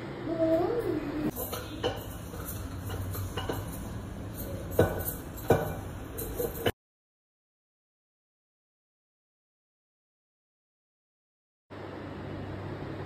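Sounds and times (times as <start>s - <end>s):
metal on metal clinks: 1.3s - 6.7s
metal utensil stirring in pan: 1.3s - 6.7s.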